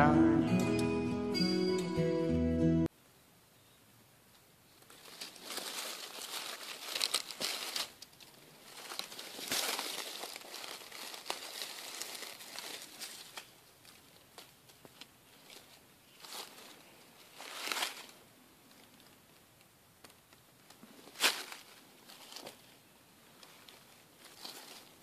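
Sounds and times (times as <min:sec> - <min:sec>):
dry leaves rustling and crackling: 0:04.7 - 0:19.3, 0:20.8 - 0:25.0.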